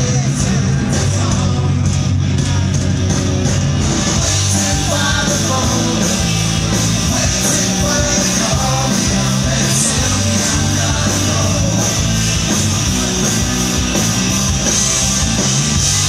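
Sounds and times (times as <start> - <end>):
bass guitar: 0.0 - 16.0
drums: 0.0 - 16.0
loud electric guitars: 0.0 - 16.0
person singing: 4.2 - 12.1.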